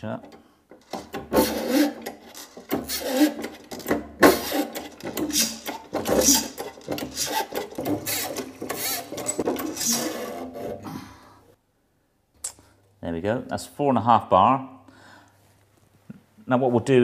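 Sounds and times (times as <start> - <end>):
hand pump lever strokes: 0.0 - 10.8.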